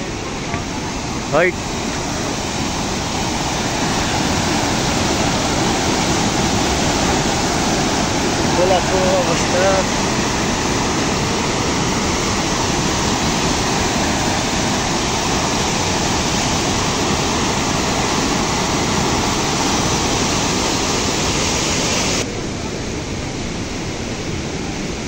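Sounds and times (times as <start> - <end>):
floodwater rushing: 0.0 - 25.0.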